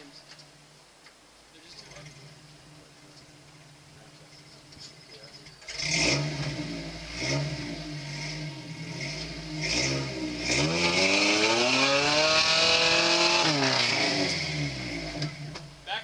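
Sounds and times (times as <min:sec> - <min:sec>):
truck engine revving: 0:05.6 - 0:15.7.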